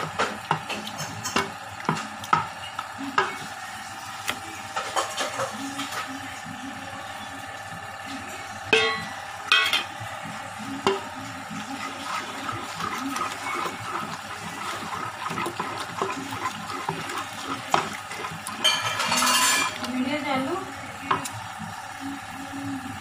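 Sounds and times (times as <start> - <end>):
spoon clinking on metal pot: 8.7 - 9.9, 11.8 - 20.0
spoon stirring thick paste: 10.2 - 22.8.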